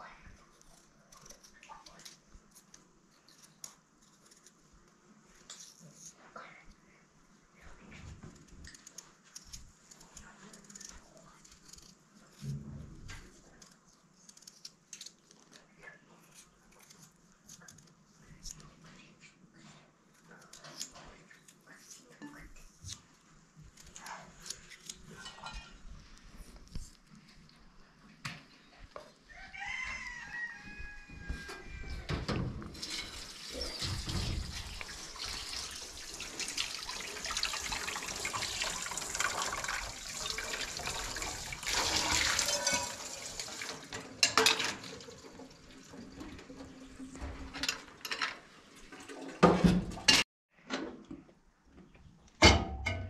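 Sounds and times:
water running: 32.7s - 50.0s
kitchen things clicking and knocking: 41.8s - 51.1s, 52.4s - 53.0s.

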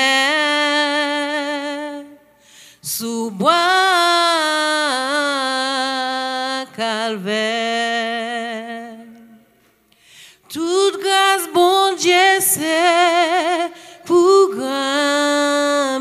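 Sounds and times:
woman singing a hymn: 0.0s - 9.5s, 10.4s - 16.0s
singer breathing in: 2.3s - 2.8s, 9.9s - 10.5s, 13.8s - 14.0s.

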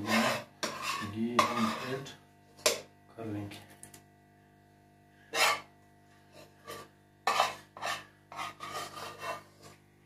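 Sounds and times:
spoon scraping: 0.0s - 2.9s, 5.3s - 9.9s.

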